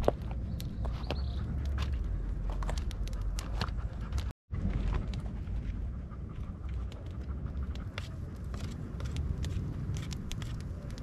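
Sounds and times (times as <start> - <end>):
low rumble: 0.0 - 11.0
campfire crackling and popping: 7.7 - 11.0.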